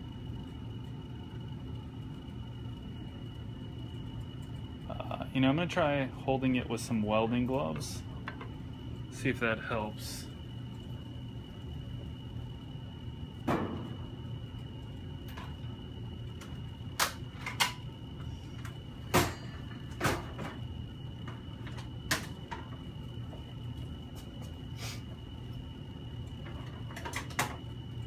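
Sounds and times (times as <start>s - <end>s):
faint high whine: 0.0s - 28.0s
steady low hum: 0.0s - 28.0s.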